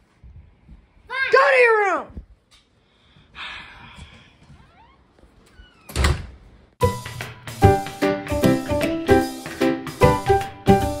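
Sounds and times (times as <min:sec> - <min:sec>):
background music with beat: 0:06.8 - 0:11.0.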